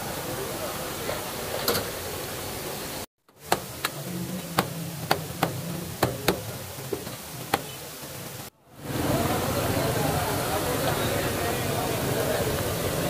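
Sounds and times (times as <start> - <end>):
sharp knocks: 3.4 - 7.8.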